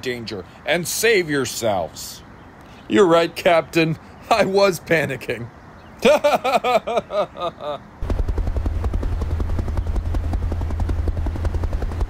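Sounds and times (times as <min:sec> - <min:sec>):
person laughing: 0:06.0 - 0:07.9
helicopter rotor sound effect: 0:08.0 - 0:12.0.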